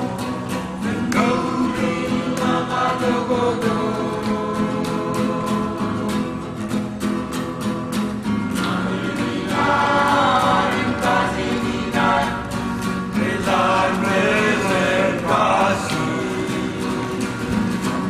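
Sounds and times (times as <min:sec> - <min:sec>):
group of voices singing: 0:00.0 - 0:18.0.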